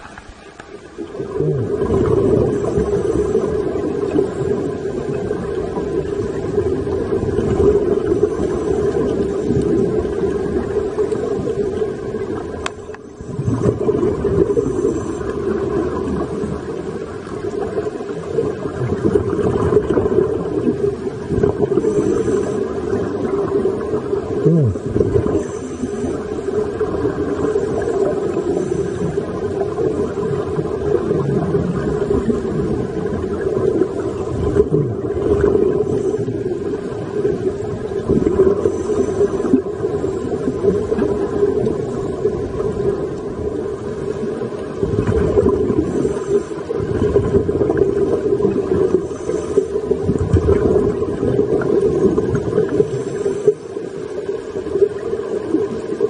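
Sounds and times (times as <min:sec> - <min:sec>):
rumbling hiss of exhaled bubbles: 0:00.0 - 0:56.0
scuba divers breathing through regulators: 0:00.2 - 0:04.8, 0:12.9 - 0:16.0, 0:21.4 - 0:23.3, 0:24.4 - 0:26.7, 0:27.3 - 0:29.6, 0:33.9 - 0:37.3, 0:38.3 - 0:40.6, 0:45.6 - 0:50.7, 0:52.1 - 0:54.1.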